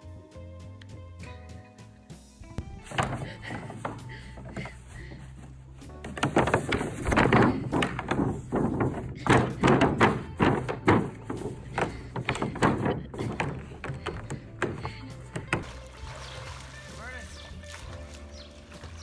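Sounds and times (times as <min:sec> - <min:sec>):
plastic pool thunking on grass: 0:02.8 - 0:04.8, 0:05.9 - 0:19.0.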